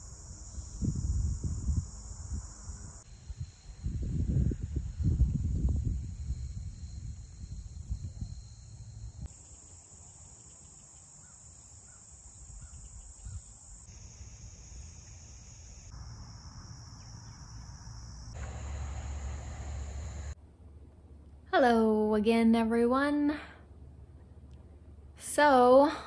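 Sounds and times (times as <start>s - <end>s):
crickets and insects chirping: 0.0s - 20.4s
low rumble: 18.4s - 20.4s.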